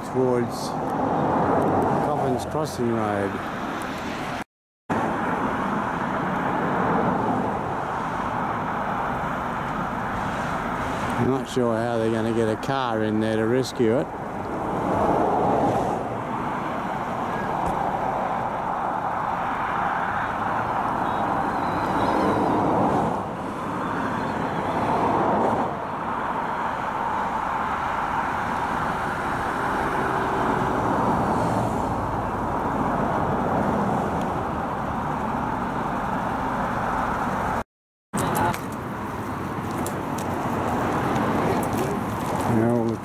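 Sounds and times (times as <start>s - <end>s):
car engine and road noise: 0.0s - 43.0s.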